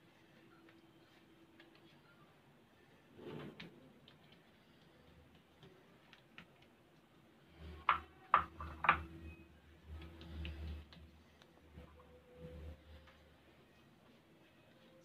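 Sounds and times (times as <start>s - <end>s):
light clicks and taps: 3.6s - 9.1s.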